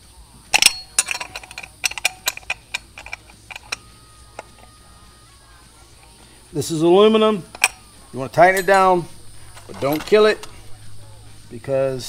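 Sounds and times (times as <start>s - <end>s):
ratchet wrench clicking: 0.5s - 4.8s, 7.5s - 10.6s.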